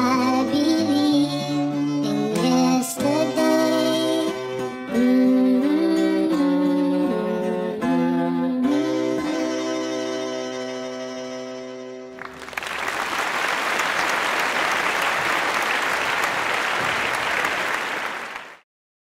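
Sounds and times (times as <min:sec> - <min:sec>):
applause: 0:12.2 - 0:18.7.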